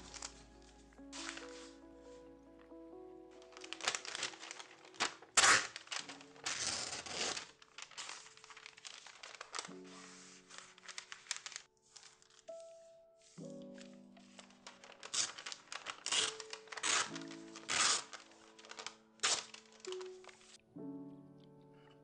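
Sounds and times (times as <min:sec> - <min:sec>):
paper crinkling and rustling: 0:00.0 - 0:20.6
soft lo-fi background music: 0:00.0 - 0:22.0
paper tearing: 0:01.2 - 0:01.7, 0:03.4 - 0:12.7, 0:14.2 - 0:20.5.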